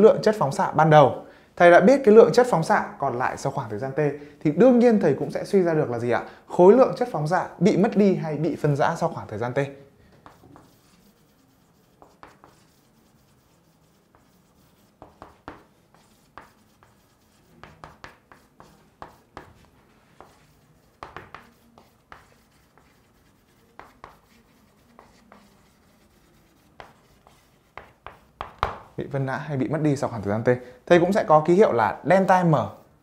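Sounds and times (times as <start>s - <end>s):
chalk writing on chalkboard: 10.1s - 29.0s.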